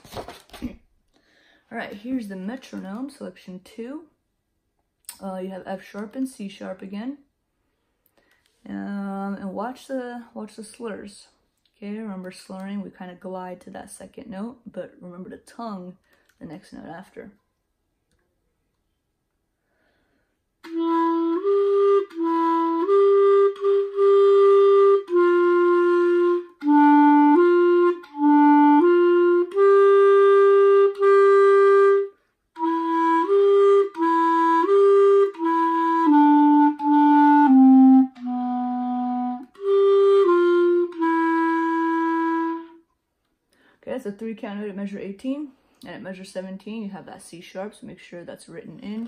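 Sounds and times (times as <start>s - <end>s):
solo clarinet melody: 20.6s - 42.9s.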